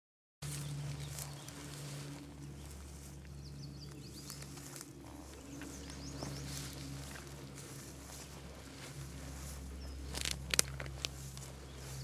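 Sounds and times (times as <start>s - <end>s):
songbird chirping: 0.4s - 12.0s
steady low hum: 0.4s - 12.0s.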